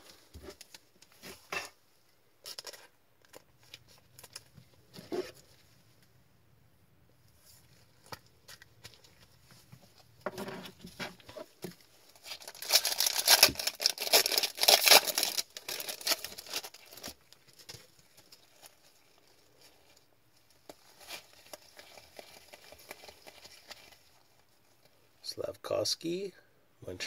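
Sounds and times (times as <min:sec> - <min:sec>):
foil wrapper tearing and crinkling: 0:12.1 - 0:24.4.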